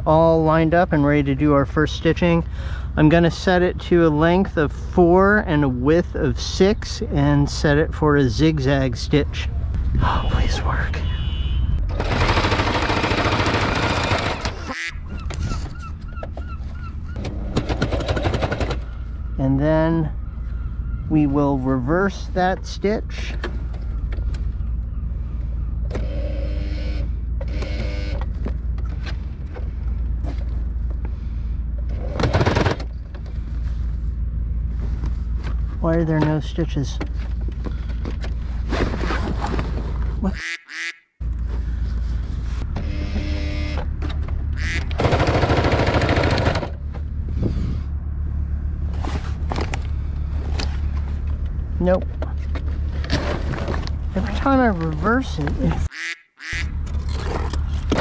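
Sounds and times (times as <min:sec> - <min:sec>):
steady low rumble: 0:00.0 - 0:14.0, 0:18.6 - 0:27.6, 0:28.2 - 0:32.2, 0:32.8 - 0:40.4, 0:41.2 - 0:55.9
steady low hum: 0:00.0 - 0:40.4, 0:41.2 - 0:55.9
sewing machine motor running: 0:11.9 - 0:14.6.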